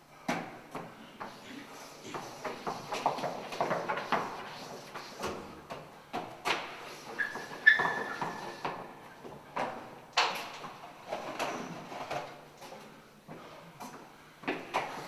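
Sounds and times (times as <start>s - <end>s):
chalk scraping on blackboard: 1.3s - 5.4s, 6.8s - 8.7s
high chalk squeal: 6.8s - 8.7s.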